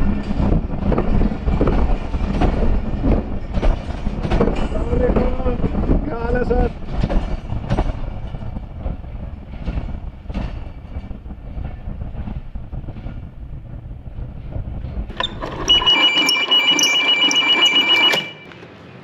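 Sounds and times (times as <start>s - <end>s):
clicks over rail joints: 0.0s - 11.1s
train wheels rumbling on track: 0.0s - 18.3s
pulsing electronic ring: 15.1s - 18.5s.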